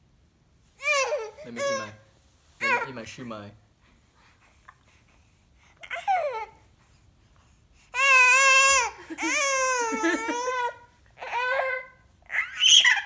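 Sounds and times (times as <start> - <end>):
baby crying: 0.8 - 2.0, 8.0 - 13.0.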